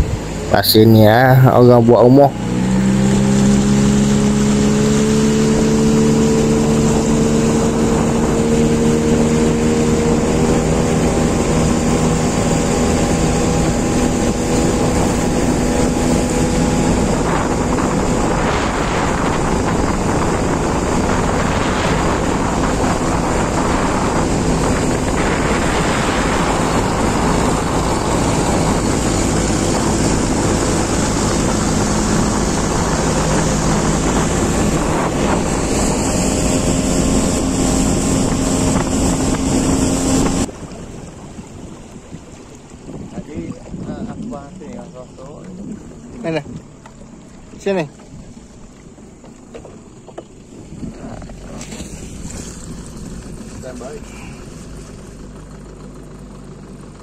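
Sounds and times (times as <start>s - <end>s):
wind buffeting microphone: 0.0s - 55.4s
boat engine humming: 0.0s - 57.0s.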